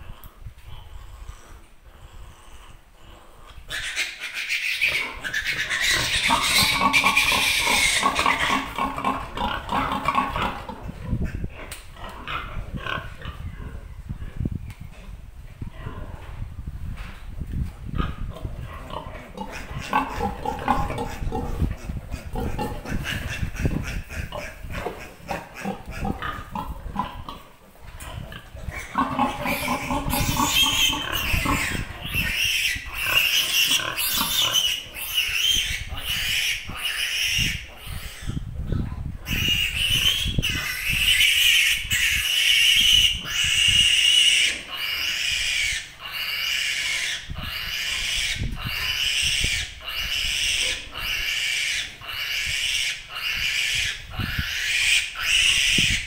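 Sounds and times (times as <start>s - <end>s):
piglet squealing: 3.7s - 8.7s, 28.8s - 38.4s, 39.3s - 56.0s.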